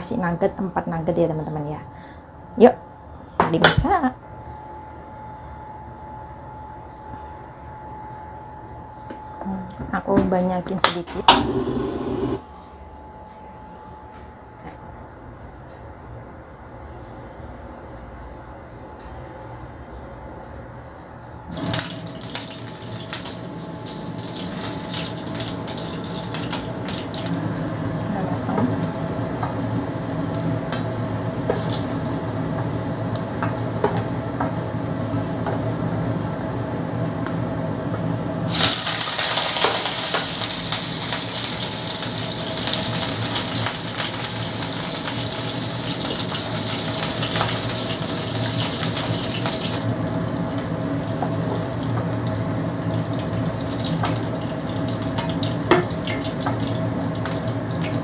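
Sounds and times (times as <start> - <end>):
steady hum: 11.0 - 15.4
loud dense sizzle: 11.3 - 12.5, 21.5 - 34.4, 38.4 - 58.0
food sizzling in hot oil: 21.5 - 27.4, 31.4 - 32.4, 38.5 - 58.0.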